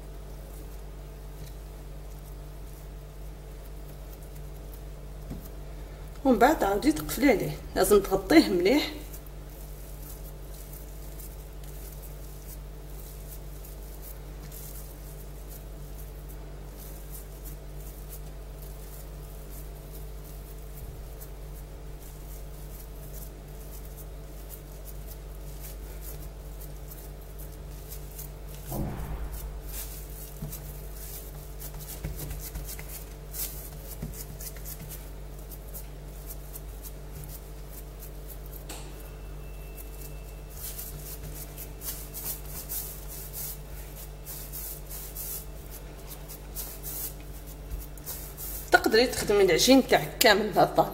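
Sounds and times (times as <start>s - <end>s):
hands working dough on countertop: 0.0s - 50.9s
steady low hum: 0.0s - 50.9s.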